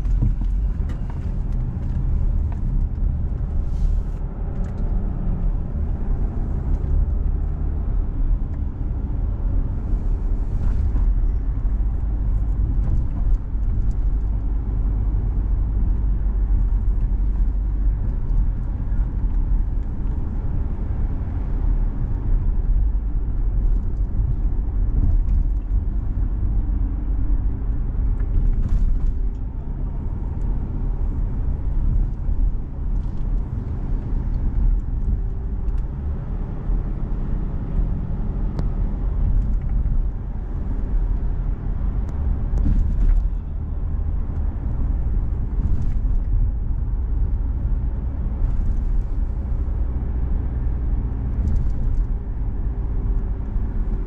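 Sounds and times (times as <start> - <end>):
car engine and road noise: 0.0 - 54.0.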